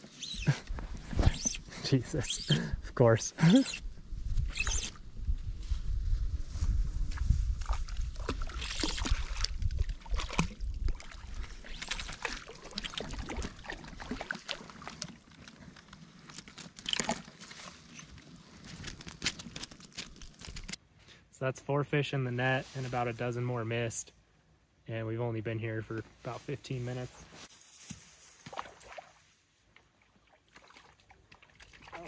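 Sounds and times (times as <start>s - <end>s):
fish thrashing in water: 7.6s - 15.4s.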